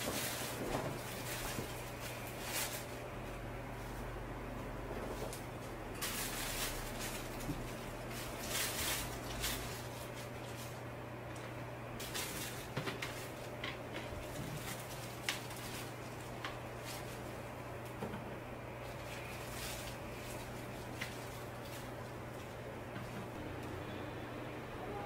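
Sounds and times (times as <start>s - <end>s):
plastic wrapping crinkling: 0.0s - 18.0s, 18.7s - 23.4s
steady low hum: 0.0s - 25.0s.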